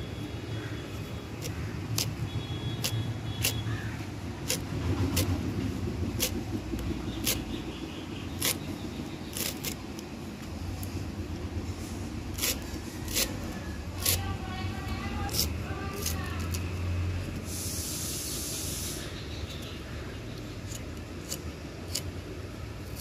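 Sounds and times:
blade cutting florets clicking: 1.4s - 3.7s, 4.4s - 7.5s, 8.3s - 11.0s, 19.5s - 23.0s.

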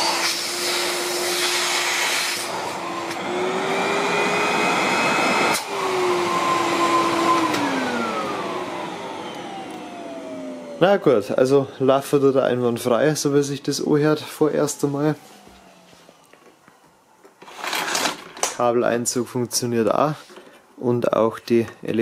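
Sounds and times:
vacuum cleaner motor running: 0.0s - 11.3s, 13.0s - 16.5s.

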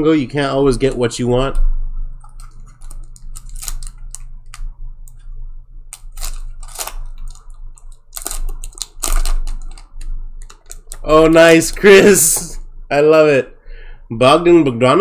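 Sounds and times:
steady low hum: 0.0s - 15.0s
cards and foil wrappers handled: 2.4s - 5.2s, 5.9s - 12.5s.

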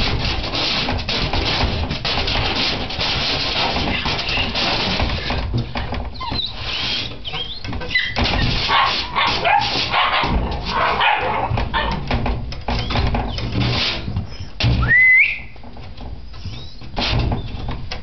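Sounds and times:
scuffling against pen wall: 0.0s - 14.8s, 15.4s - 18.0s
puppies whimpering: 6.1s - 8.4s.

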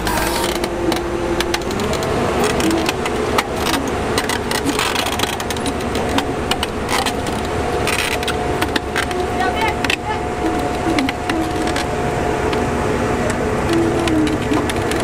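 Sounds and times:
knocks and clanks: 0.0s - 11.9s
diesel engine revving: 0.0s - 15.0s.

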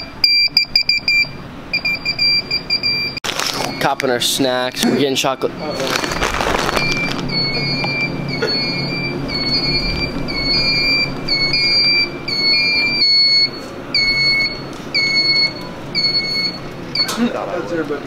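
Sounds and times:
reverse-warning beeper: 5.6s - 17.2s.

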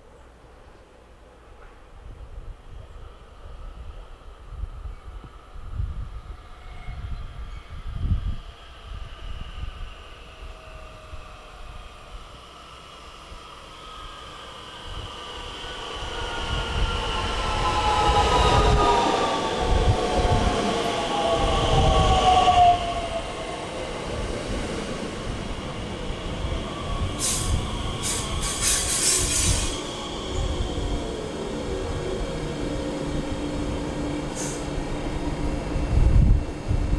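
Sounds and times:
electric train drive whine: 7.8s - 28.7s
train wheels rumbling: 9.8s - 36.9s.

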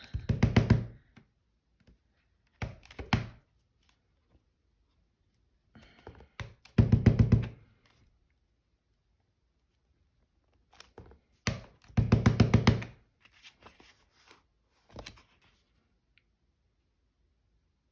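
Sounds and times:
stamp knocking on ink pad: 11.6s - 12.9s.

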